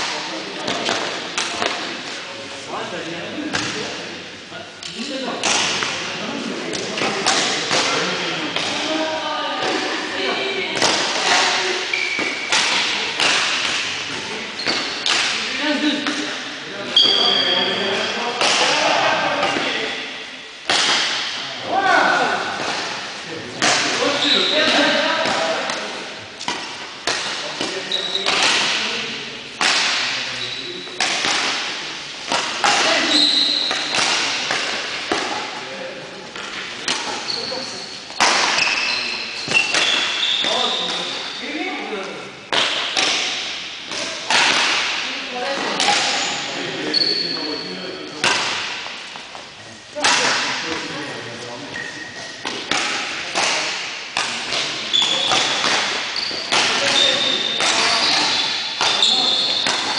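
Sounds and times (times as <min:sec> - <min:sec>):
racket hitting shuttlecock: 0:00.0 - 0:02.0, 0:04.8 - 0:06.1, 0:06.7 - 0:08.9, 0:10.8 - 0:16.5, 0:18.4 - 0:18.8, 0:20.6 - 0:21.4, 0:24.7 - 0:30.3, 0:30.9 - 0:35.6, 0:36.4 - 0:41.3, 0:42.5 - 0:46.4, 0:48.2 - 0:50.9, 0:52.4 - 0:59.9
shoes squeaking on court floor: 0:09.6 - 0:13.1, 0:14.0 - 0:15.1, 0:16.9 - 0:18.2, 0:24.0 - 0:25.6, 0:27.3 - 0:28.8, 0:32.9 - 0:35.5, 0:36.3 - 0:41.6, 0:45.6 - 0:49.9, 0:51.4 - 0:52.7, 0:54.5 - 0:59.9.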